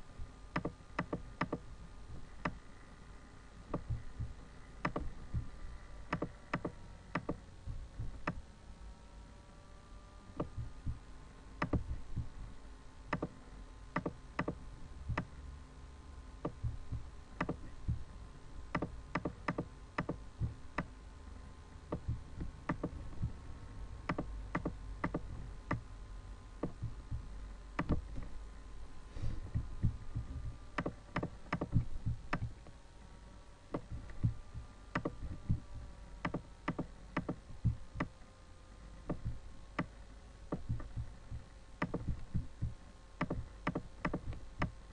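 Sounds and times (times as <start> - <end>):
computer mouse clicking: 0.5 - 1.6, 3.7 - 5.5, 6.1 - 7.4, 11.6 - 12.3, 13.1 - 13.3, 14.0 - 15.3, 17.4 - 18.0, 18.7 - 20.9, 21.9 - 23.3, 24.1 - 25.8, 27.8 - 28.3, 29.5 - 32.7, 33.7 - 35.6, 36.2 - 38.1, 40.5 - 44.8
low rumble: 1.6 - 8.4, 10.4 - 12.7, 16.5 - 19.1, 20.2 - 20.8, 22.0 - 24.1, 25.2 - 31.1, 31.7 - 32.6, 33.8 - 36.2, 37.4 - 38.1, 39.1 - 39.6, 40.6 - 43.6.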